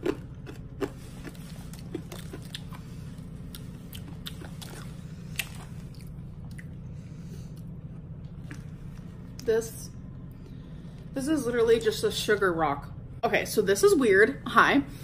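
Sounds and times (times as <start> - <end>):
hard candy being chewed: 0.0 - 9.5.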